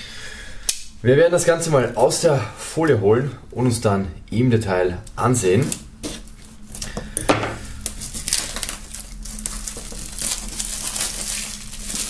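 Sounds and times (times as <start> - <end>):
plastic film crinkling: 7.6 - 12.0.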